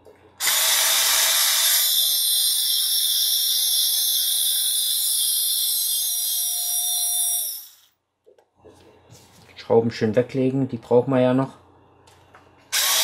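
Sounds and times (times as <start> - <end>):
electric screwdriver whirring: 0.4 - 2.1, 12.7 - 13.0.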